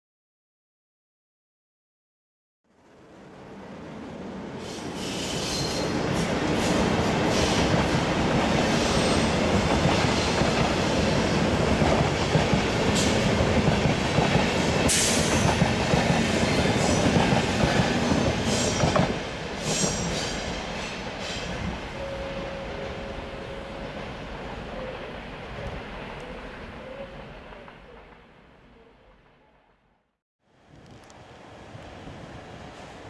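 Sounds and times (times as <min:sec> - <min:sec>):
train wheels rumbling on rails: 0:04.5 - 0:28.3.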